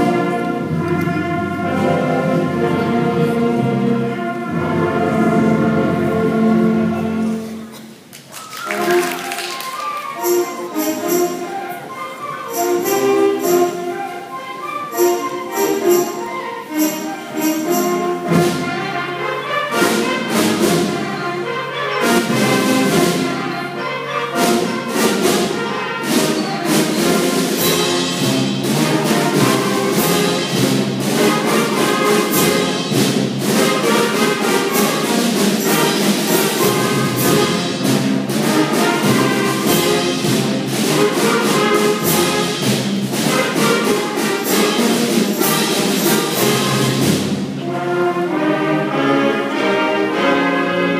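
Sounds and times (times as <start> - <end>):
concert band playing: 0.0 - 50.9
steady drum beat: 24.3 - 47.7.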